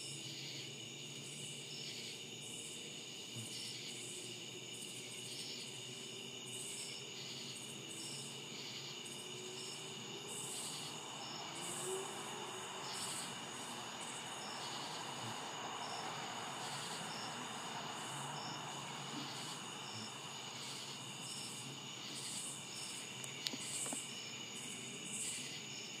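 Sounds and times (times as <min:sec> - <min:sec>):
crickets trilling: 0:00.0 - 0:26.0
insects chirping pulses: 0:00.0 - 0:26.0.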